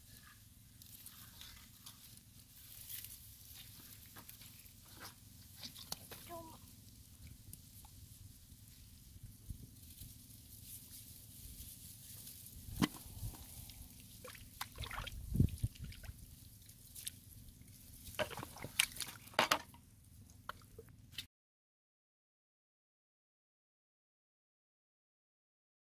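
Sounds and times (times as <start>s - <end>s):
mud dripping: 4.9s - 6.3s, 12.7s - 19.4s, 20.2s - 21.2s
hands squelching in wet mud: 12.8s - 17.4s, 18.0s - 19.4s.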